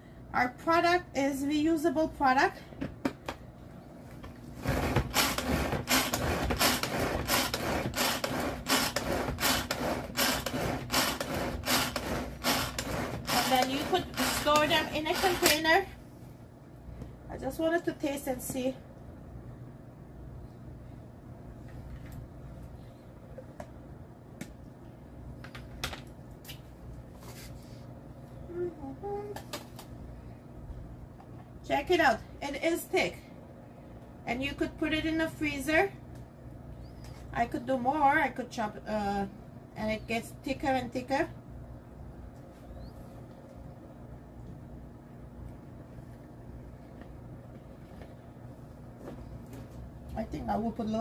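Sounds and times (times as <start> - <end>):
low steady hum: 0.0 - 51.0
pull-cord chopper blades whirring: 5.0 - 15.6.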